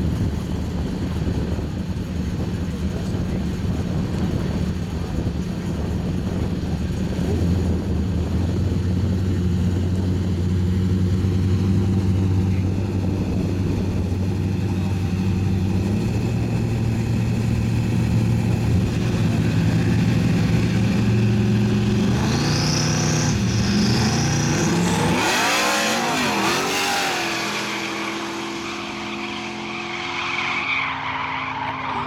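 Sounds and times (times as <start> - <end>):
drag car engines idling: 0.0 - 22.2
engines revving through gears: 10.8 - 30.5.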